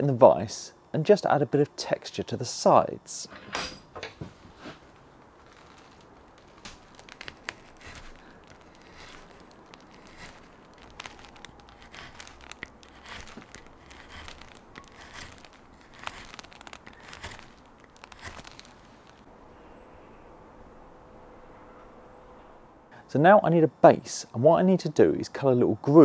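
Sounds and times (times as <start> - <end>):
gouge scraping wood: 5.4 - 19.2.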